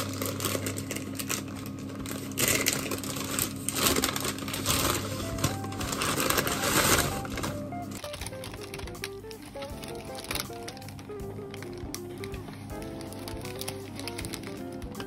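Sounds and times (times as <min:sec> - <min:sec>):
paper bag crinkling: 0:00.0 - 0:15.0
background music: 0:05.1 - 0:15.0.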